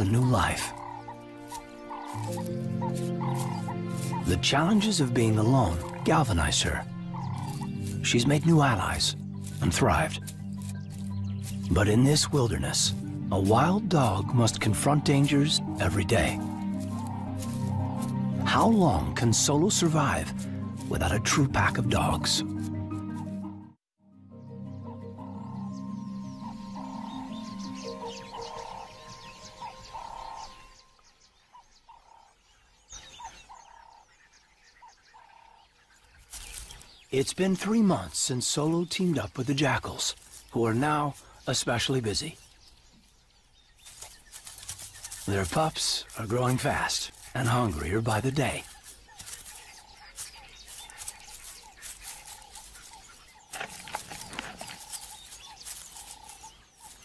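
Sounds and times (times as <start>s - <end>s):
steady-pitched call: 0.0s - 4.4s, 15.6s - 18.5s
two-part bird call: 0.0s - 6.5s
background music: 0.0s - 30.9s, 45.1s - 48.7s
birds chirping: 0.0s - 57.0s.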